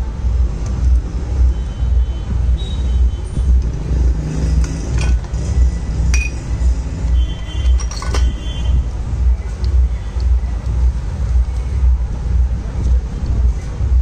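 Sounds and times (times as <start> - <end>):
background music: 0.0 - 14.0
metal tool clinking: 6.1 - 6.5, 7.7 - 8.4.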